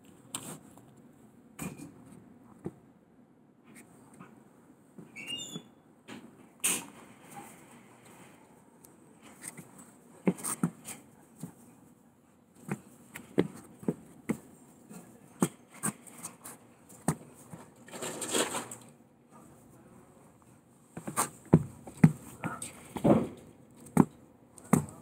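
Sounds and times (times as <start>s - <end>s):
sneakers tapping on wooden boards: 12.7s - 14.5s, 21.0s - 25.0s.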